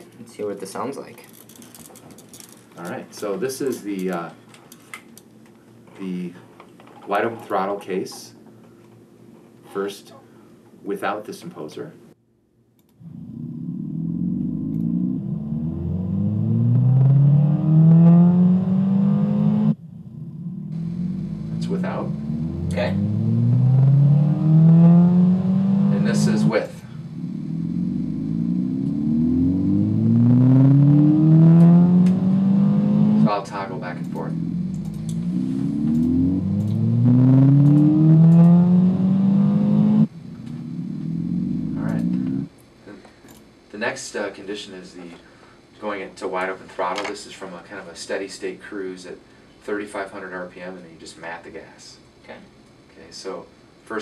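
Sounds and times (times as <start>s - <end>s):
car engine accelerating: 13.0s - 42.5s.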